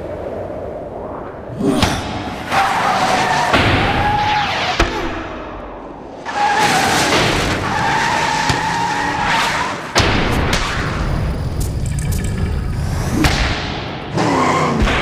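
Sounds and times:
car tyres squealing: 0:06.2 - 0:10.0.

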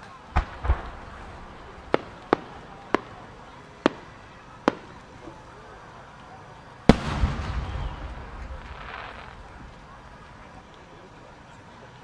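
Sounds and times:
sharp firework cracks: 0:00.0 - 0:05.5, 0:06.9 - 0:10.9.

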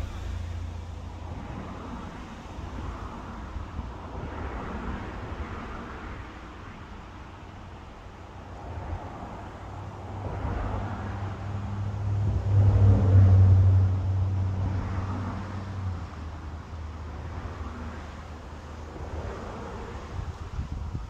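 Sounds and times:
motor vehicle passing by: 0:08.9 - 0:20.9.

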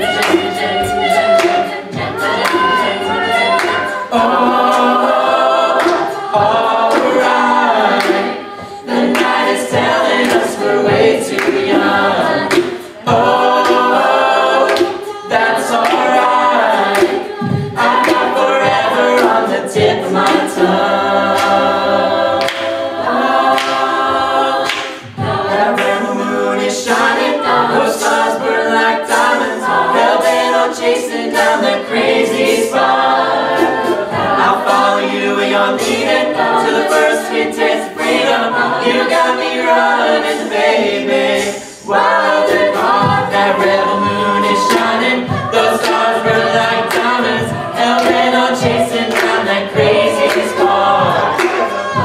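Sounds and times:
backing vocal harmonies: 0:00.0 - 0:52.0.

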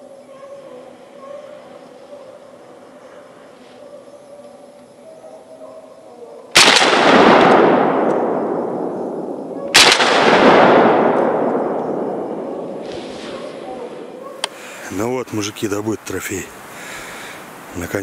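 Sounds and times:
echo rolling through forest: 0:00.0 - 0:18.0
shotgun shots: 0:06.6 - 0:13.2.

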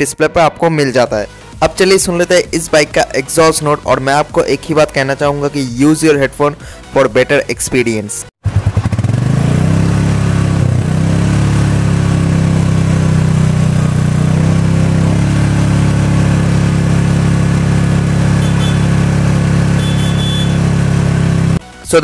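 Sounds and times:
motorcycle engine idling: 0:08.4 - 0:09.3, 0:11.8 - 0:21.6.

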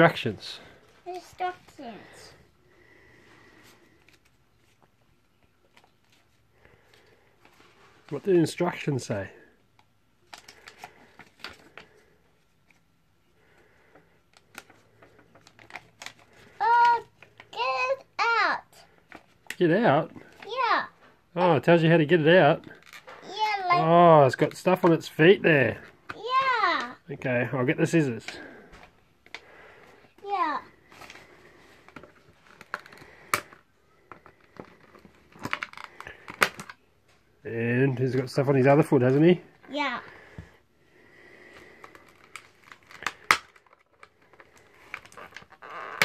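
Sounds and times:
child's voice: 0:01.0 - 0:02.4, 0:16.6 - 0:18.9, 0:20.4 - 0:21.0, 0:23.2 - 0:23.9, 0:26.1 - 0:27.0, 0:30.2 - 0:30.8, 0:39.7 - 0:40.1
packaging rustling: 0:41.5 - 0:46.0.

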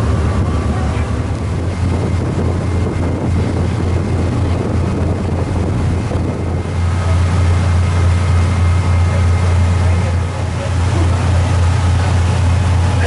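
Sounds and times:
wind noise on microphone: 0:00.0 - 0:10.5
boat engine droning: 0:00.0 - 0:13.0.

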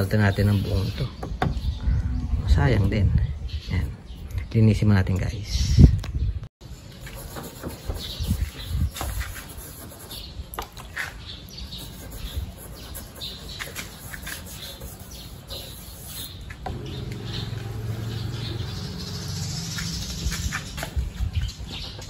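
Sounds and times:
brush scrubbing: 0:11.7 - 0:18.4
steady low hum: 0:16.6 - 0:20.5.

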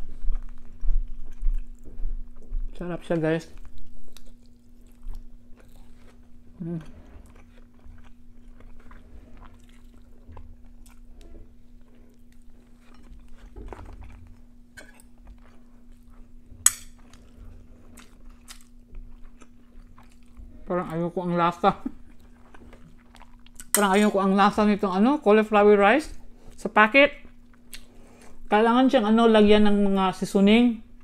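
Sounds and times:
chewing and crunching: 0:00.0 - 0:24.6.

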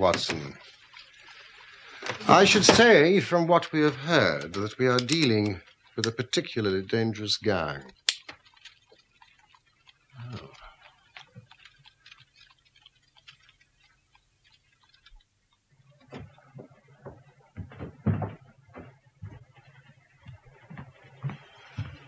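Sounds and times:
light ticking and clicking: 0:07.8 - 0:16.4
knocks: 0:16.1 - 0:19.4.

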